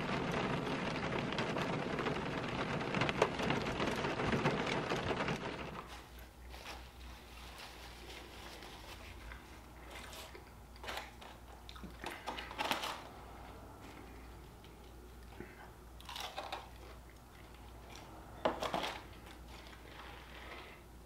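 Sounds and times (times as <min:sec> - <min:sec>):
rain falling on a car: 0:00.0 - 0:05.9
fried chicken crunching: 0:13.9 - 0:20.7.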